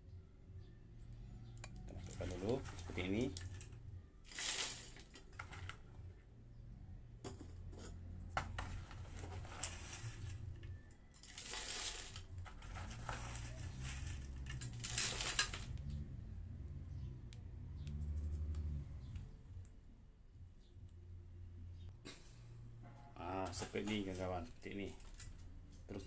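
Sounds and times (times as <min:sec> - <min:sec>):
gravel rattling into tin can: 0:01.9 - 0:05.8, 0:08.6 - 0:15.8
low hum: 0:12.1 - 0:23.7.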